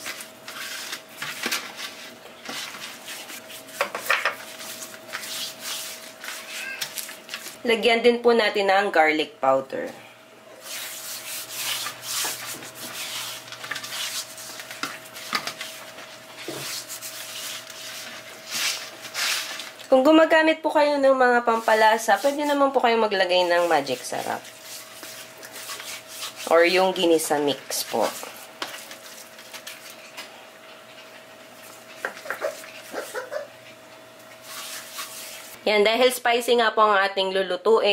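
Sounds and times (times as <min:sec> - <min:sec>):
hands rubbing skin: 0:01.9 - 0:07.6, 0:10.6 - 0:19.7, 0:21.5 - 0:22.6, 0:23.4 - 0:26.6, 0:34.4 - 0:35.6.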